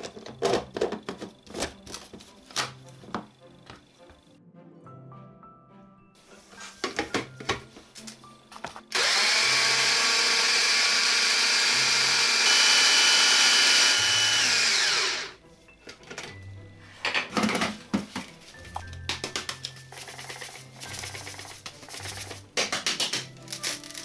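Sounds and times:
blender motor running: 8.9s - 15.4s.

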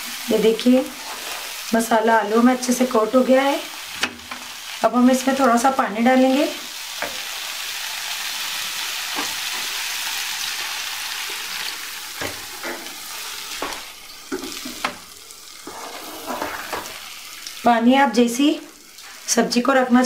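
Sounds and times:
curry sizzling in a pan: 0.0s - 20.0s
wooden spatula scraping a pan: 0.9s - 1.6s, 15.6s - 17.0s.

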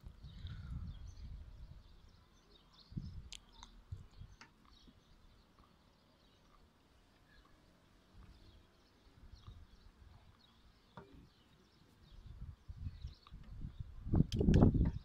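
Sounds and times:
low microphone rumbles: 0.0s - 2.2s, 2.9s - 4.4s
distant small birds chirping: 0.0s - 15.0s.

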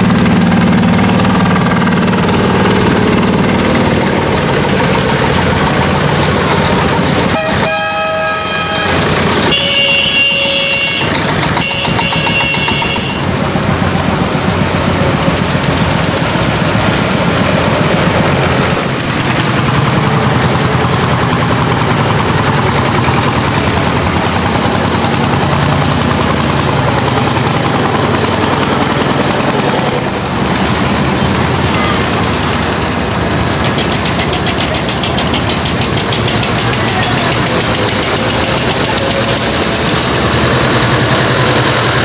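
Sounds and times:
single-cylinder engine exhaust beat: 0.0s - 42.0s
tractor engines passing: 0.0s - 42.0s.

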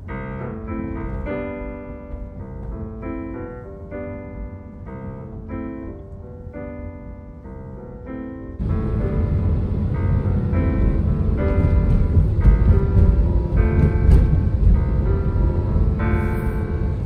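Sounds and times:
piano chords: 0.0s - 17.0s
car low rumble: 8.6s - 17.0s
road noise rushing: 8.6s - 17.0s.

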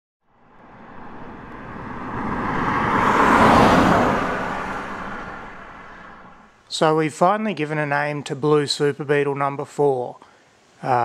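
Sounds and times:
car driving past: 0.3s - 6.6s.

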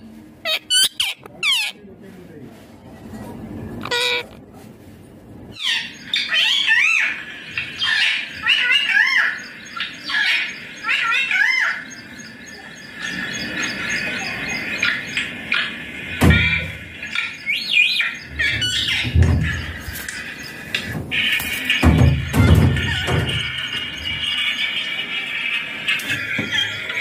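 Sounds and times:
parakeet screeching: 0.4s - 1.8s, 3.8s - 4.4s, 5.6s - 12.0s, 16.5s - 19.8s.

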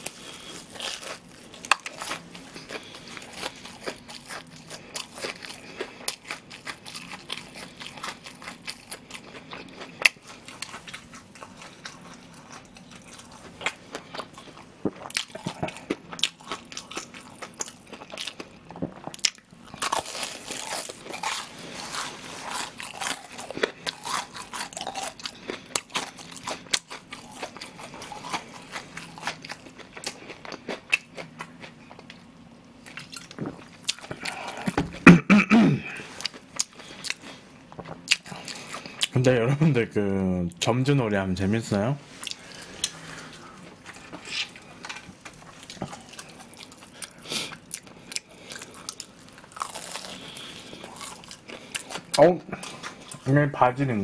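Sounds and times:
crunching and chewing fried food: 0.0s - 35.2s, 35.8s - 39.8s, 42.1s - 54.0s.

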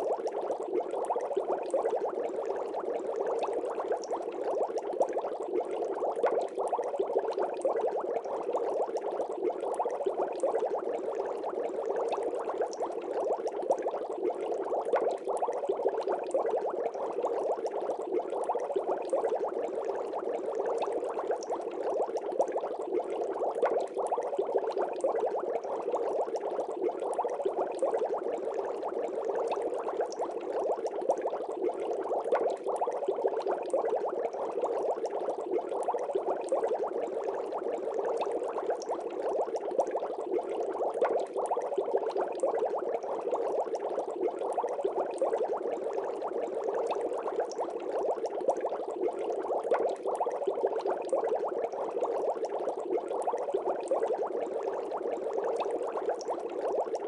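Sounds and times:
aquarium bubbling: 0.0s - 57.0s.

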